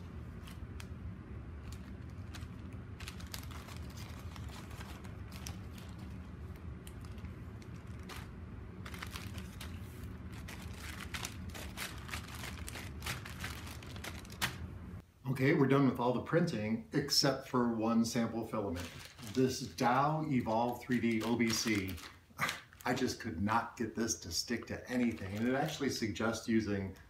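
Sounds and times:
steady low hum: 0.0 - 27.0
plastic bags crinkling: 1.6 - 14.7, 18.6 - 23.3, 24.5 - 27.0.

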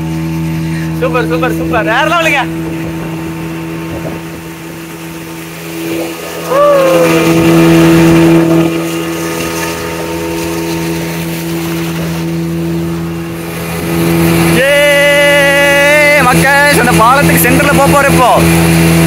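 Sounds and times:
speedboat engine droning: 0.0 - 19.0
water and wind rush: 0.0 - 19.0
person crying out: 6.4 - 7.4.

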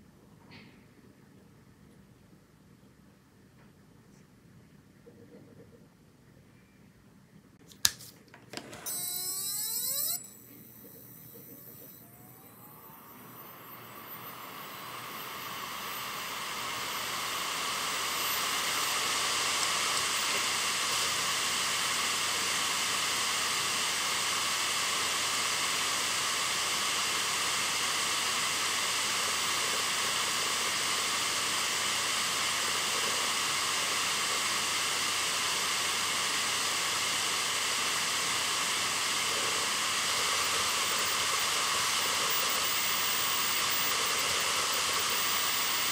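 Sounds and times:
hard drive motor whine: 8.6 - 45.9
air rushing off platters: 34.9 - 45.9.

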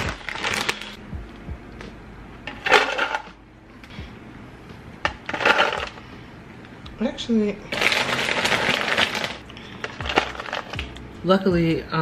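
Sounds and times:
popcorn rustling: 0.0 - 1.0, 5.2 - 6.0, 7.7 - 11.0
snack bag crinkling: 0.0 - 1.0, 7.7 - 11.0.

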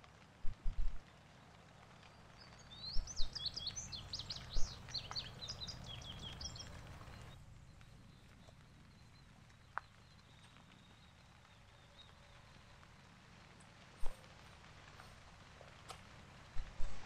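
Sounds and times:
wind rumble on microphone: 0.2 - 1.0
songbird chirping and trilling: 2.3 - 12.8.

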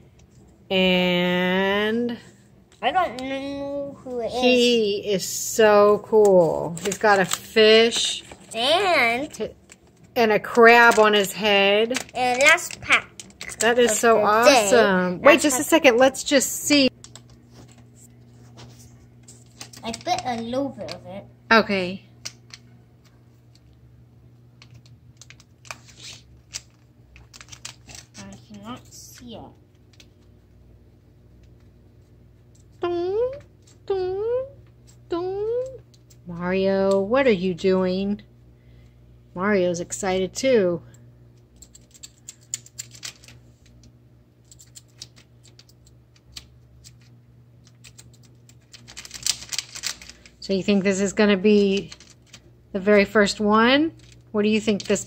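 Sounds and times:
steady low hum: 0.0 - 55.0
plastic wrapper crinkling and tearing: 6.6 - 14.6, 19.2 - 21.1, 24.6 - 30.3, 44.4 - 50.4, 51.5 - 52.5, 53.9 - 55.0.

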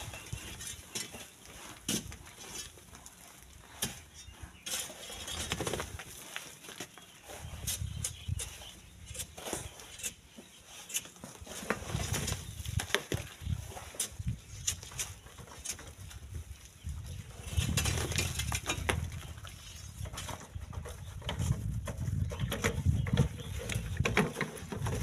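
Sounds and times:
iron pole scraping sand: 0.0 - 12.5
sand and stones trickling: 0.0 - 22.2.

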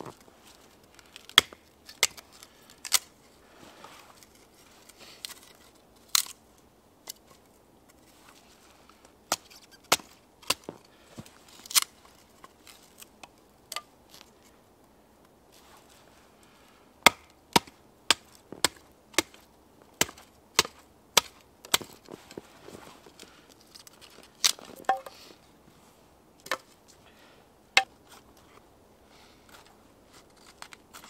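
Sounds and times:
rustling and handling: 0.0 - 14.6, 15.2 - 16.8, 20.1 - 27.0
log knocking on wood: 24.8 - 25.1.

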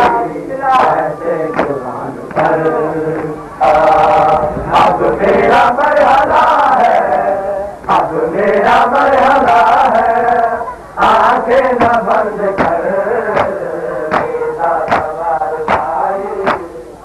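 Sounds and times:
men chanting a lament: 0.0 - 17.0
chest-beating slaps: 13.4 - 15.1, 15.7 - 16.7.

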